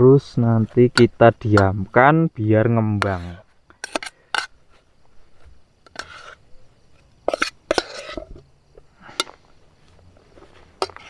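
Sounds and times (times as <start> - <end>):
metal spoon scraping a metal pot: 3.0 - 4.6, 5.8 - 6.4, 7.2 - 8.4.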